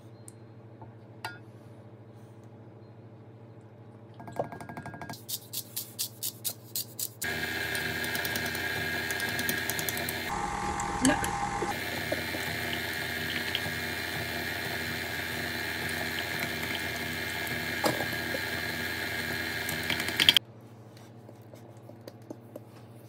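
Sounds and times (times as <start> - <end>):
faint hum: 0.0 - 4.6, 7.2 - 23.0
salt grinder clicking: 7.2 - 10.3
stand mixer running: 7.2 - 20.4.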